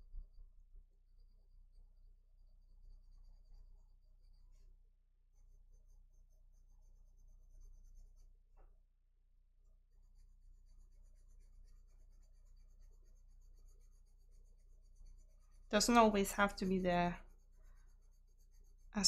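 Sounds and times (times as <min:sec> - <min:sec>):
colouring tool scratching paper: 0:05.4 - 0:08.3, 0:09.9 - 0:19.0.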